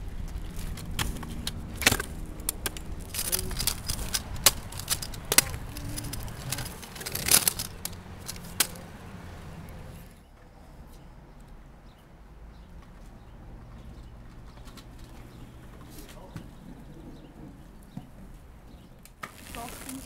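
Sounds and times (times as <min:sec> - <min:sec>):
scooter deck clacking: 0:00.0 - 0:09.1
kick scooter rolling on asphalt: 0:00.0 - 0:10.2, 0:12.5 - 0:20.0.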